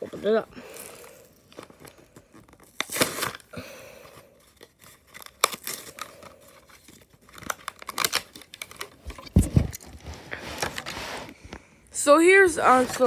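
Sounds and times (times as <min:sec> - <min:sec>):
cardboard tearing: 0:00.0 - 0:03.5, 0:04.2 - 0:11.3
plastic blister crinkling: 0:00.0 - 0:10.9.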